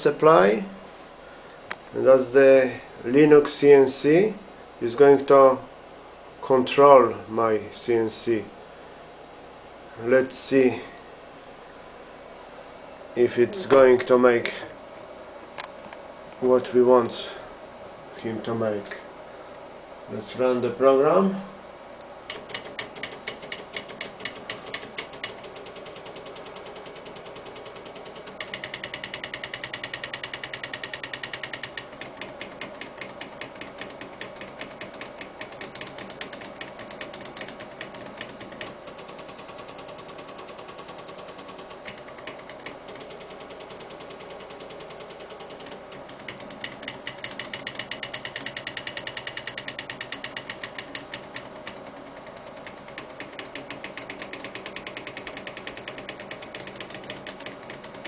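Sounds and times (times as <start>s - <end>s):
steady low hum: 0.0s - 58.0s
stepper motors ticking: 22.2s - 58.0s.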